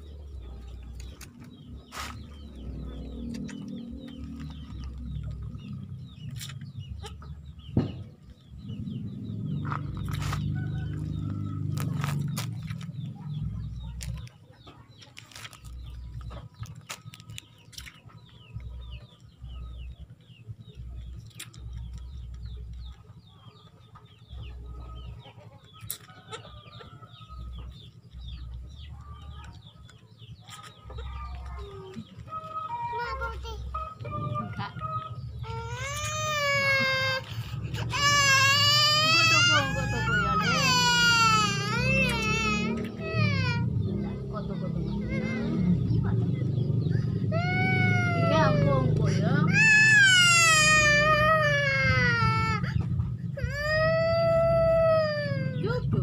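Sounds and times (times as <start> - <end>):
low rumble: 0.0 - 14.3
chickens clucking: 0.0 - 38.1.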